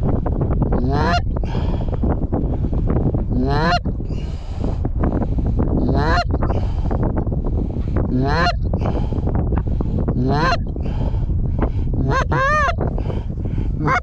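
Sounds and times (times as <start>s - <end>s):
geese honking: 0.9s - 1.2s, 3.4s - 3.8s, 5.9s - 6.3s, 8.2s - 8.6s, 10.3s - 10.6s, 12.1s - 12.8s.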